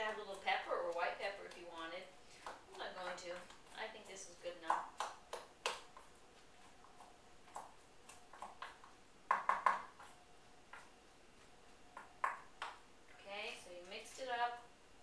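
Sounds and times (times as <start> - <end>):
wooden spoon stirring bowl: 0.0 - 14.6.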